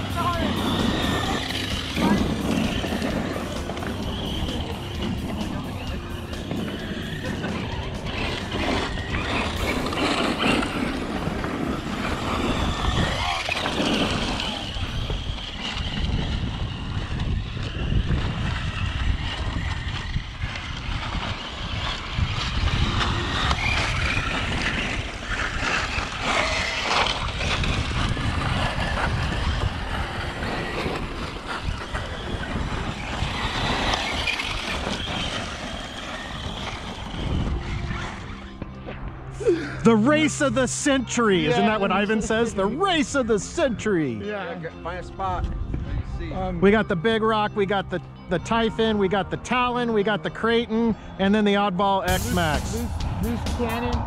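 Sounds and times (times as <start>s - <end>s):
low rumble: 0.0s - 40.1s, 52.1s - 54.0s
electric motors whining: 0.0s - 43.9s.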